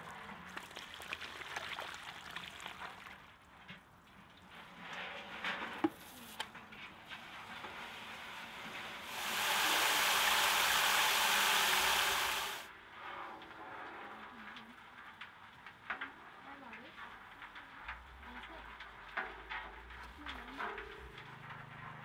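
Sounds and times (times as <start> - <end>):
hose spraying water into tub: 0.0 - 3.4, 7.0 - 12.7.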